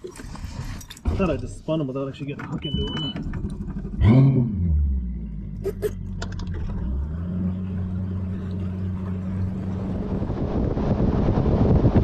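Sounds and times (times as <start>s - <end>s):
outboard motor humming: 3.1s - 10.8s
rushing wind and water: 9.4s - 12.0s.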